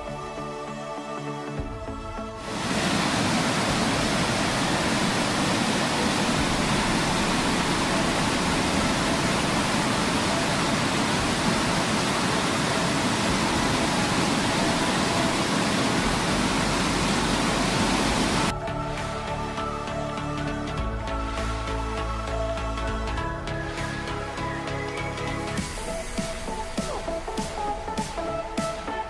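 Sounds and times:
river rushing over rocks: 2.4s - 18.5s.

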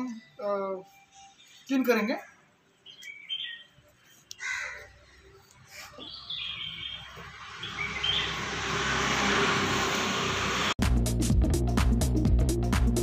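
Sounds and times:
small birds chirping: 0.0s - 8.7s.

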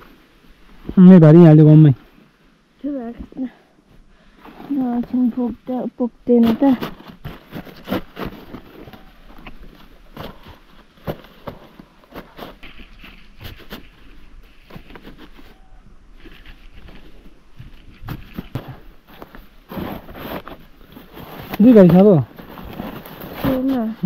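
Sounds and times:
dry corn leaves rustling: 6.3s - 24.0s.

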